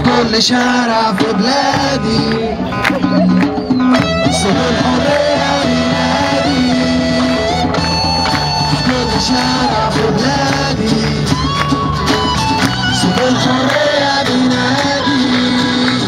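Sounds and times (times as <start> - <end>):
crowd singing along: 0.0 - 16.0
live band over loudspeakers: 0.0 - 16.0
person singing: 4.1 - 7.6, 8.3 - 11.8, 12.9 - 16.0.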